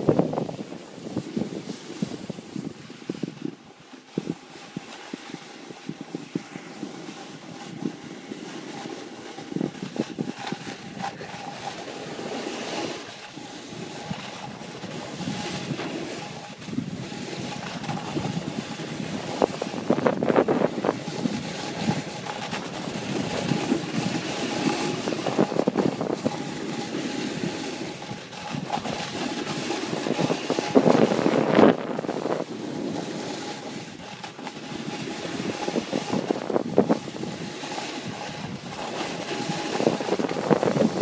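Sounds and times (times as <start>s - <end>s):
edges scraping packed snow: 0.0s - 41.0s
wind rushing over microphone: 0.0s - 41.0s.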